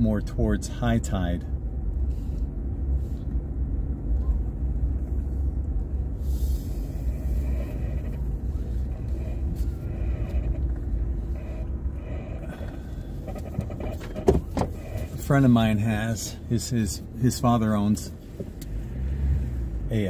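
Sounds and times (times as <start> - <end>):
car driving interior rumble: 0.0 - 20.0.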